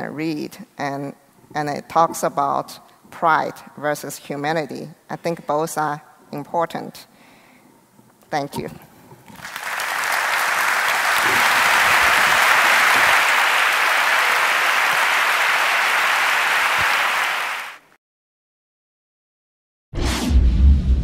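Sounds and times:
large audience applauding: 9.3s - 17.9s.

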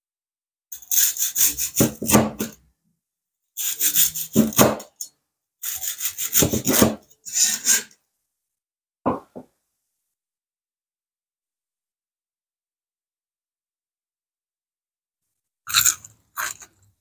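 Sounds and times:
cleaver knocking on wood: 9.1s - 9.4s
crispy chicken crust crunching: 15.7s - 16.7s.

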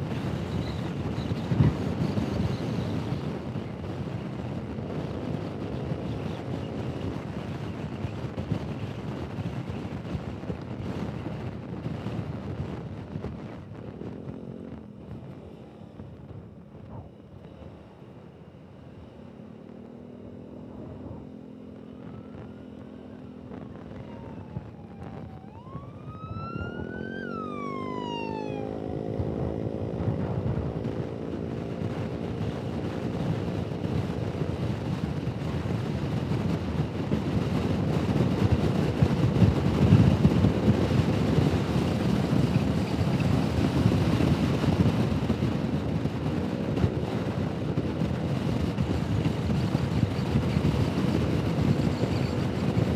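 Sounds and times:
wind rushing on microphone: 0.0s - 19.3s, 20.0s - 52.9s
scooter engine accelerating: 19.4s - 34.9s.

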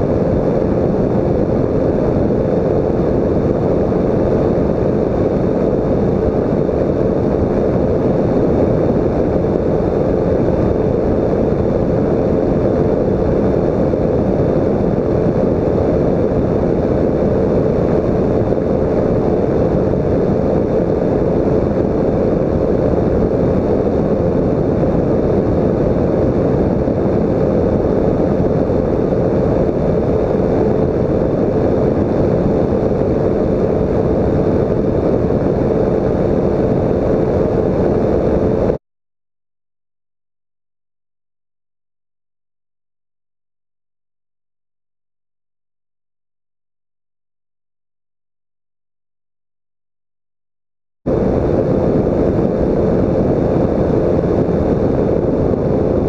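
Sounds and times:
microlight engine and propeller: 0.0s - 38.8s, 51.1s - 56.0s
steady hum: 0.0s - 38.8s, 51.1s - 56.0s
wind rushing over microphone: 0.0s - 38.8s, 51.1s - 56.0s.

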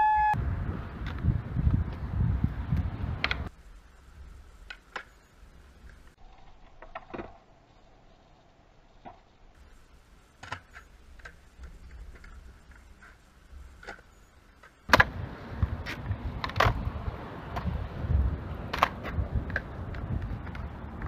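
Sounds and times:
skateboard wheels rumbling: 0.4s - 21.0s
skateboard wheels rolling: 0.5s - 21.0s
skateboard clacks: 13.8s - 17.8s, 18.6s - 21.0s.

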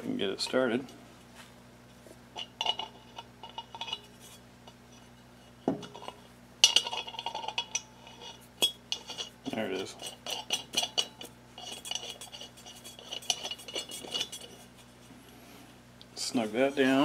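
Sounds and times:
metal nut clinking and rattling: 2.4s - 5.1s, 5.8s - 14.8s.

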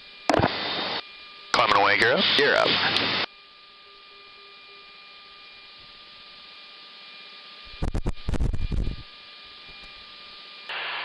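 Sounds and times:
choppy burst of radio noise: 0.3s - 3.3s
radio hiss and hum: 0.3s - 3.3s, 7.6s - 10.0s, 10.7s - 11.0s.

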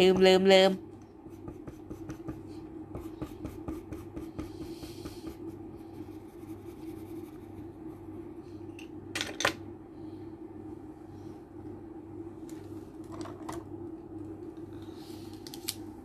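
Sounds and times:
steady low hum: 0.0s - 16.0s
pencil scratching on paper: 1.3s - 8.0s.

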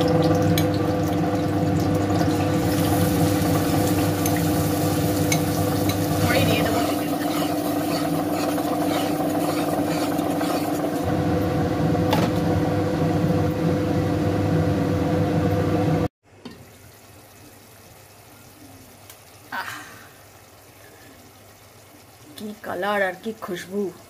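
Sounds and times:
masala sizzling in a pot: 0.0s - 11.8s, 12.6s - 24.0s.

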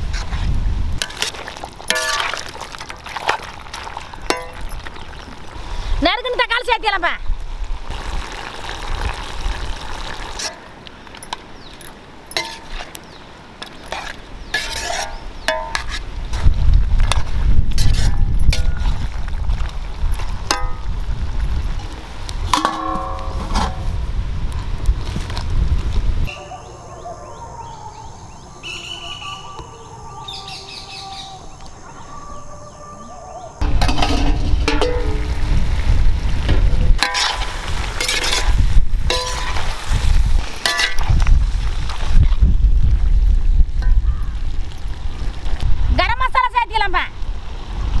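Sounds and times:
metal utensils clinking: 1.0s - 2.5s, 11.2s - 12.9s, 33.6s - 35.3s, 38.0s - 39.7s, 40.6s - 41.0s
small birds chirping: 26.3s - 33.6s.

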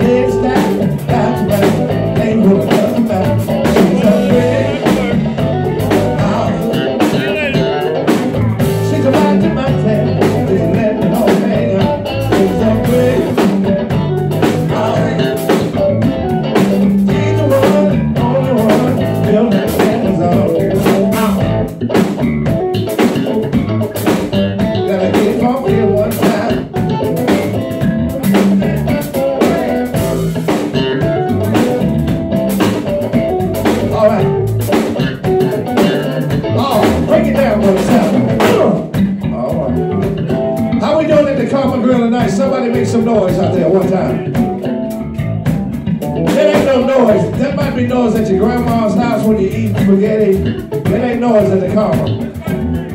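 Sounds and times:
man singing into a microphone: 0.0s - 7.8s, 8.8s - 13.7s, 14.4s - 15.7s, 17.0s - 21.5s, 24.7s - 26.7s, 36.5s - 39.9s, 40.8s - 44.4s, 46.3s - 52.7s
drum kit beat: 0.0s - 52.9s
electric bass: 0.0s - 52.9s
electric guitar: 0.0s - 52.9s.

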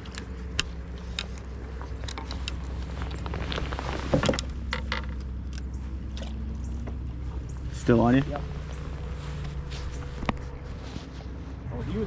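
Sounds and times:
steady low hum: 0.0s - 12.0s
fishing tackle clicking and knocking: 4.2s - 7.0s.

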